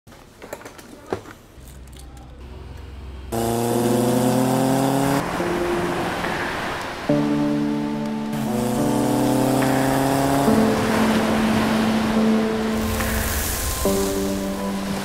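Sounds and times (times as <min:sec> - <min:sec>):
low engine hum: 0:01.7 - 0:06.2
engine revving: 0:02.4 - 0:05.5, 0:08.3 - 0:12.0
rushing noise: 0:08.4 - 0:15.0.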